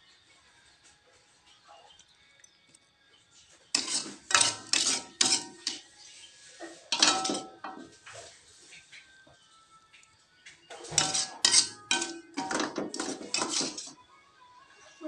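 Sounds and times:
metal spoon scraping cookware: 0:03.7 - 0:05.9, 0:06.7 - 0:07.9, 0:10.7 - 0:14.0.

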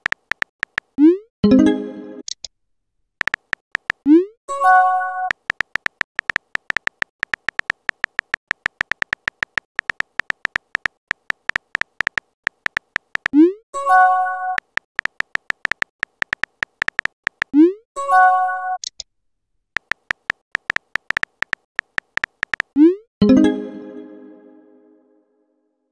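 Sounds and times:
synthetic keyboard tap clicks: 0:00.0 - 0:01.1, 0:03.2 - 0:04.2, 0:05.2 - 0:13.5, 0:14.5 - 0:17.7, 0:19.8 - 0:22.9.

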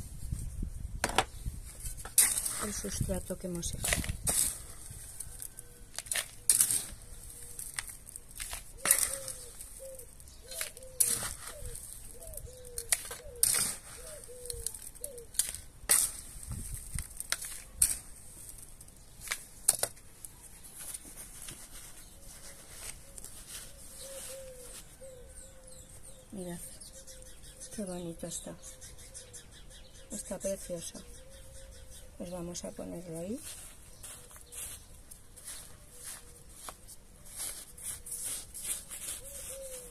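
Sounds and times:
gloved hands working soil: 0:01.6 - 0:26.5, 0:32.2 - 0:39.9
trowel scraping potting mix: 0:01.7 - 0:25.0, 0:34.5 - 0:39.9.

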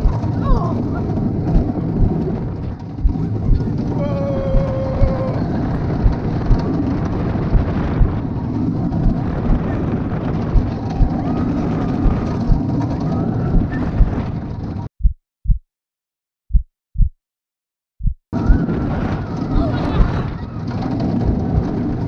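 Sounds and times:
low thuds of coaster train: 0:00.0 - 0:14.9, 0:18.4 - 0:22.0
roller coaster rumble and clatter: 0:00.0 - 0:14.9, 0:18.4 - 0:22.0.

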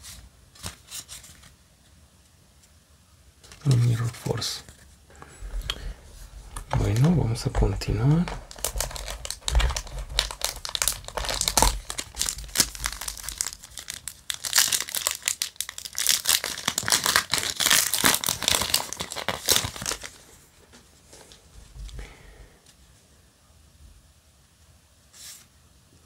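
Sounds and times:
handling cards: 0:03.4 - 0:20.2
foil wrapper crinkling: 0:05.4 - 0:20.3.

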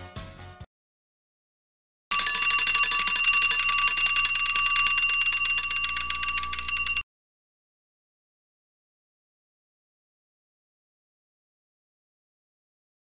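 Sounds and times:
alarm clock bells ringing: 0:02.1 - 0:07.0.

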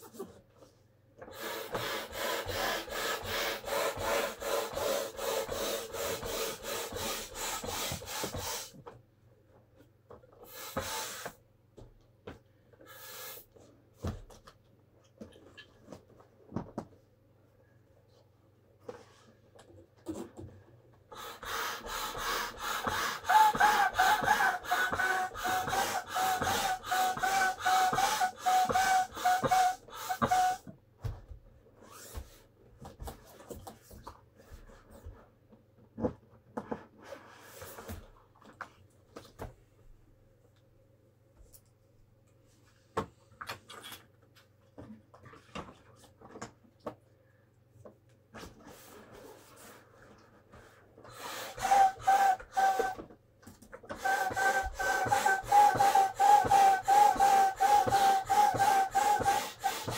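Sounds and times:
air pump strokes: 0:01.3 - 0:08.8, 0:10.4 - 0:11.4, 0:21.1 - 0:30.7, 0:51.1 - 0:53.0, 0:53.9 - 0:59.9
squeaky whistle: 0:51.5 - 0:53.0, 0:54.0 - 0:59.4.

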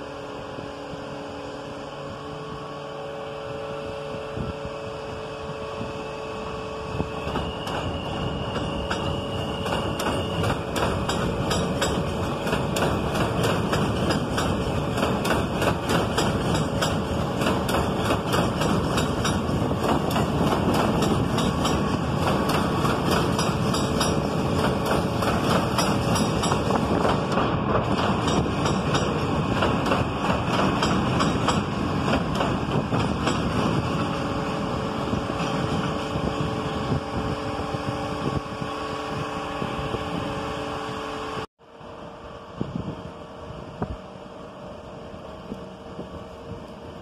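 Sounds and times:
train wheels clattering on rails: 0:07.0 - 0:37.9.

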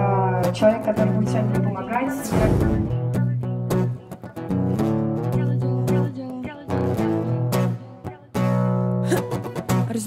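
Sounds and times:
acoustic guitar strumming chords: 0:00.0 - 0:10.0.

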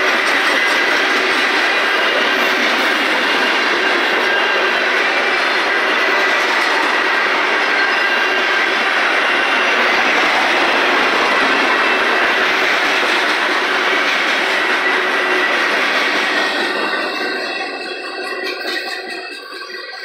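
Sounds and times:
train wheels rumbling on rail: 0:00.0 - 0:20.0.

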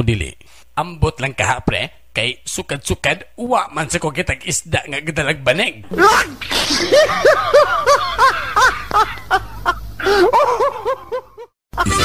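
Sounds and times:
person laughing: 0:05.9 - 0:12.0.

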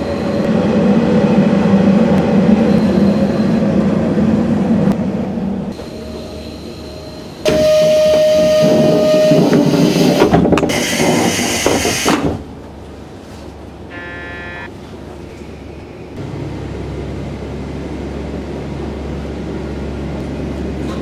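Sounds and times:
steady door warning tone: 0:05.8 - 0:10.1.

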